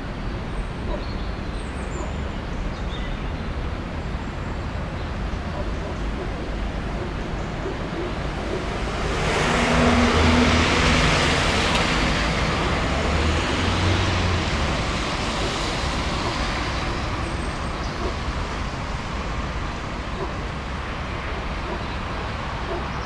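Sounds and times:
vehicle passing by: 5.9s - 23.0s.

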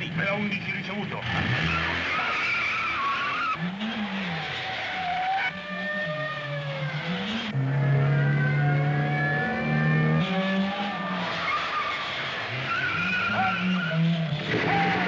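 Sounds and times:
car engines running hard: 0.0s - 15.0s
tyres squealing: 1.4s - 5.5s, 10.5s - 15.0s.

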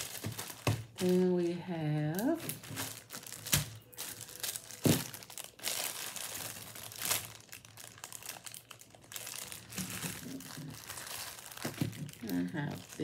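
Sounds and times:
packaging crinkling and rustling: 0.0s - 13.0s.

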